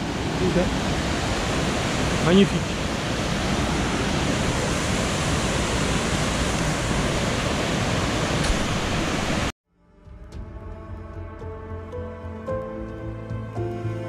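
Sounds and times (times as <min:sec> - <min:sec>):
water rushing over rocks: 0:00.0 - 0:09.5
soft music: 0:09.7 - 0:14.0.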